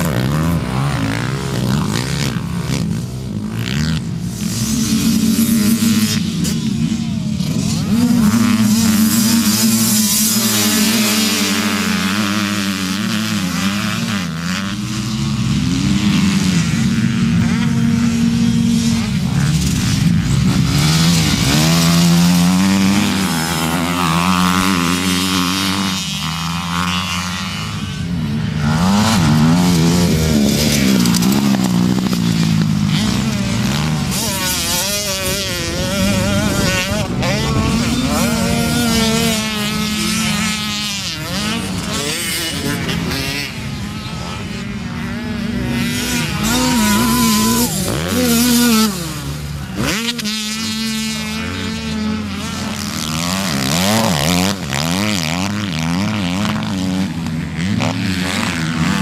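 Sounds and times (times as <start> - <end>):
motocross bike engines revving: 0.0 - 59.0.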